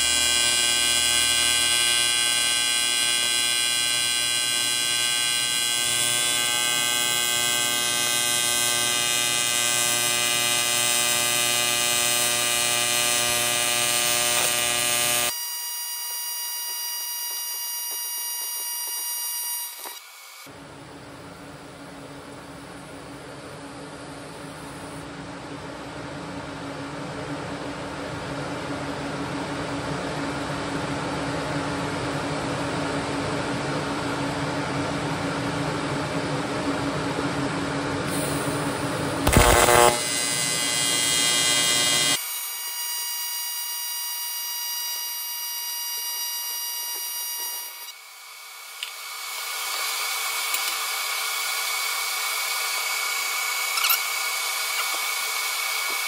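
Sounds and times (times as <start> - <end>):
welding arc buzzing: 0.0 - 20.5, 38.1 - 56.0
loud crackle: 38.1 - 42.2.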